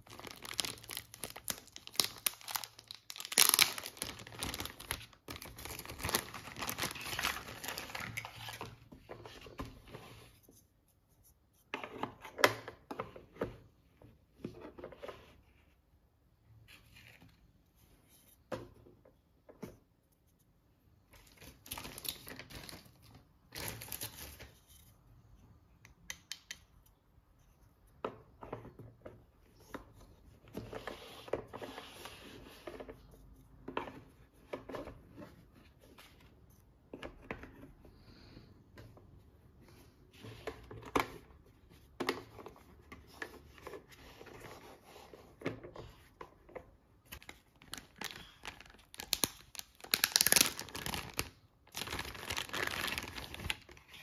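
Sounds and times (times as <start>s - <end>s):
packaging crinkling: 0.0s - 8.3s, 47.2s - 53.8s.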